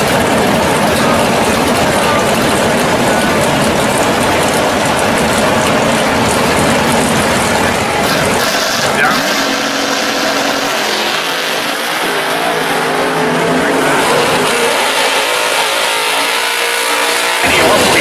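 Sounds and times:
drag car engines revving: 0.0 - 18.0.

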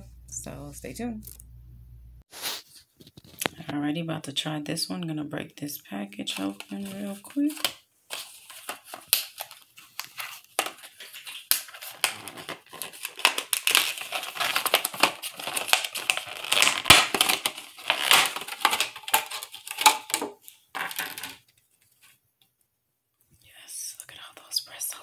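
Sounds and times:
plastic blister pack crackling: 6.3 - 21.5.

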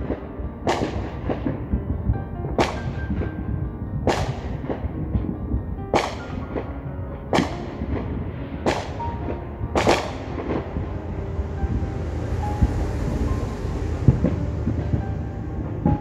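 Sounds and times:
fireworks sharp bangs: 0.0 - 16.0
faint firework pops: 4.1 - 4.9, 7.3 - 10.7.

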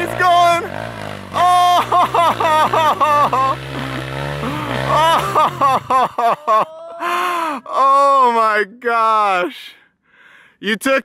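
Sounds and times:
dirt bike engine running: 0.0 - 6.2
excited high-pitched shouting: 1.4 - 3.4, 4.8 - 5.4.

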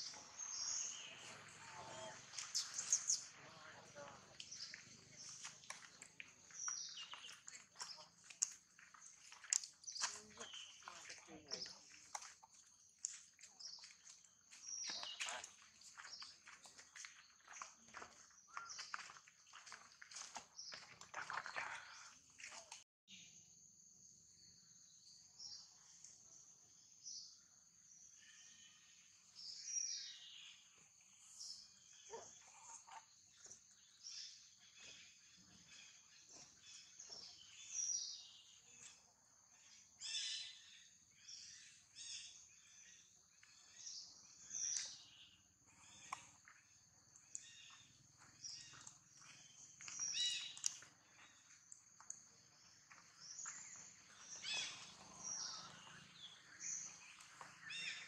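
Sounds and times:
high chirping calls: 0.0 - 12.2, 53.2 - 58.0.

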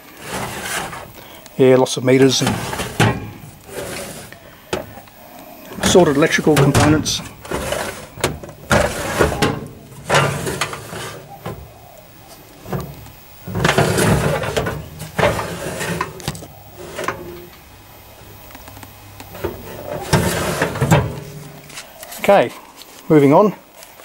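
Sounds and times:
filing cabinet drawers sliding: 0.0 - 5.0, 5.7 - 11.8, 12.6 - 17.5, 19.3 - 21.8
drawer clicks and knocks: 5.8 - 11.7.

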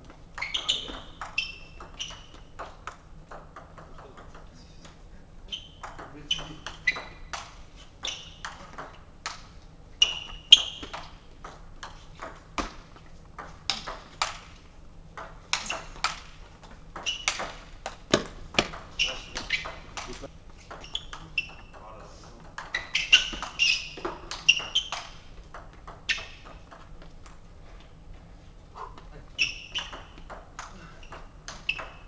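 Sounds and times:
table tennis ball clicks: 13.4 - 21.8, 29.5 - 32.0.

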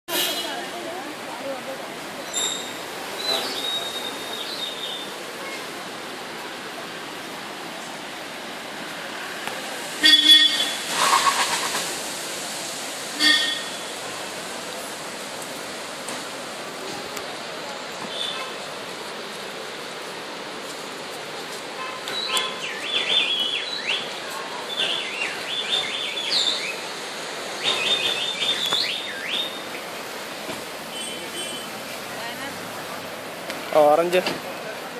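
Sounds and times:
songbird singing: 2.2 - 5.2, 22.1 - 29.8, 30.9 - 31.7
outdoor rushing noise: 10.6 - 13.2.

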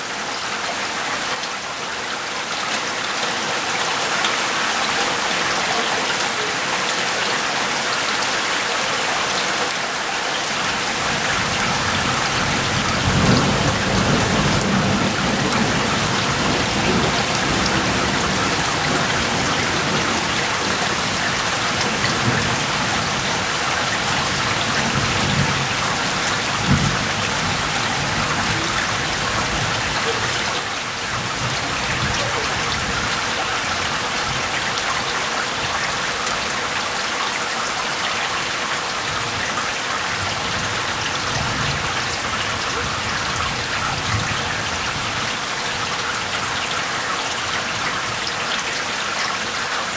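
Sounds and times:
heavy rain and hail on grass: 0.0 - 49.9
thunder rolling: 11.5 - 30.3.

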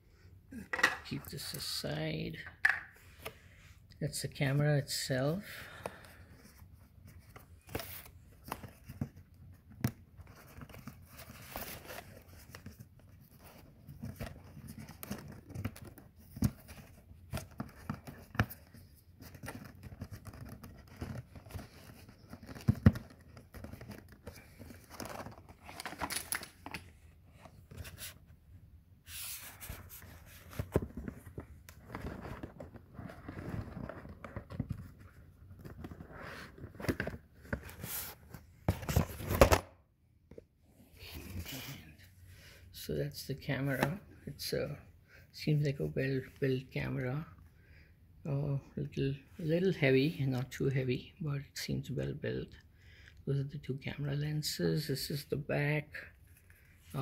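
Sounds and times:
cardboard rustling and scraping: 6.2 - 28.4, 29.0 - 39.6.

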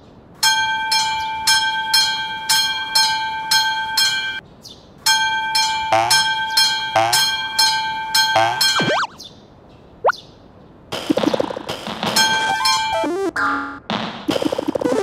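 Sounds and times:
railroad crossing warning bell: 0.4 - 4.4, 5.1 - 8.9
cartoon boing sound effects: 8.4 - 9.2.

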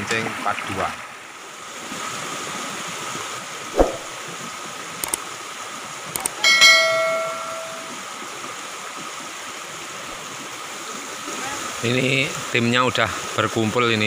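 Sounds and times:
small stream rushing: 0.0 - 14.0
short whoosh: 3.8 - 4.2
notification bell ding: 6.4 - 8.0.

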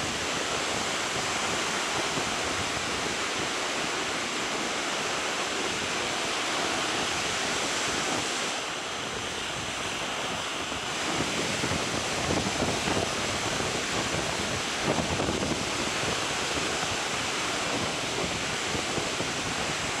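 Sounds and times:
surf washing onto beach: 0.0 - 20.0
wind buffeting microphone: 0.0 - 20.0.

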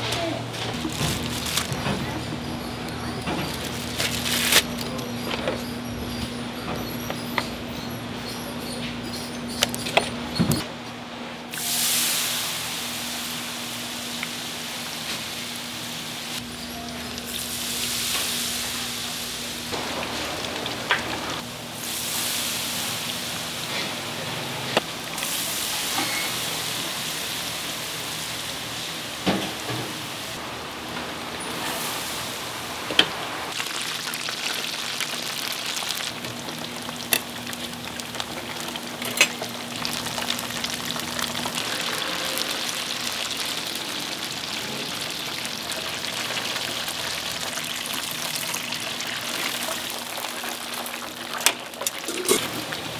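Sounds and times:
oil sizzling in a deep fryer: 11.5 - 52.9.

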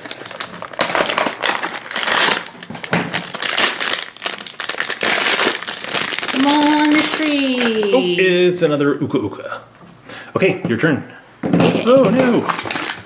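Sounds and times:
foil bag crinkling: 0.0 - 8.0, 12.2 - 13.0.

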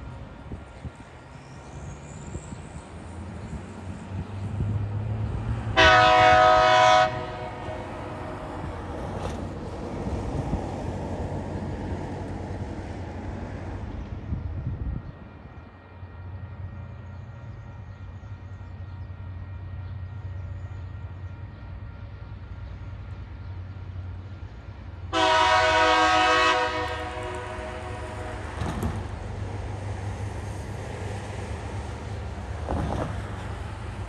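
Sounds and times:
diesel locomotive engine rumble: 0.0 - 34.0
locomotive horn blast: 5.8 - 8.5, 25.1 - 29.0.

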